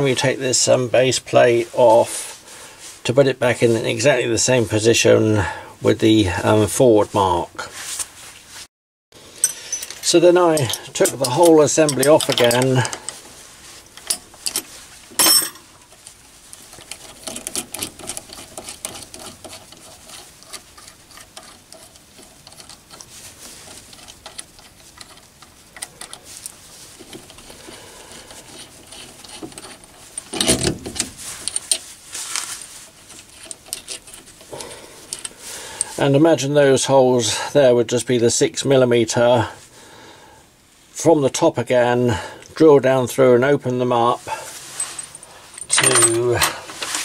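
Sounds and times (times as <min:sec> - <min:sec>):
steel nuts and washers clinking: 0:09.3 - 0:13.2, 0:13.8 - 0:36.1, 0:44.6 - 0:47.0
metal clatter: 0:44.7 - 0:47.0.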